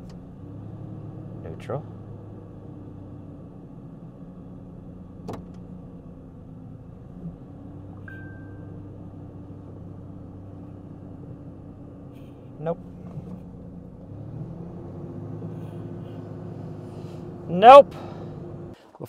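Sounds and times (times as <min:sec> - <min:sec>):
car engine idling: 0:00.0 - 0:19.0
high chirp: 0:08.0 - 0:08.8.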